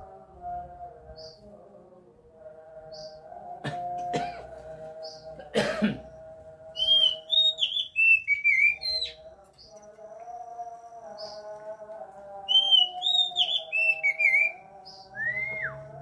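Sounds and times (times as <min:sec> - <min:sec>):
bird whistling song: 0:06.8 - 0:09.2, 0:12.5 - 0:15.8
harsh rasping bird calls: 0:06.8 - 0:09.8, 0:12.5 - 0:15.6.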